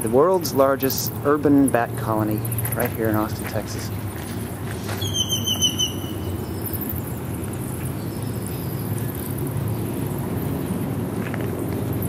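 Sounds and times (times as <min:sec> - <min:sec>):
city traffic rumble: 0:00.0 - 0:12.0
thin wavering high squeal: 0:05.0 - 0:07.1.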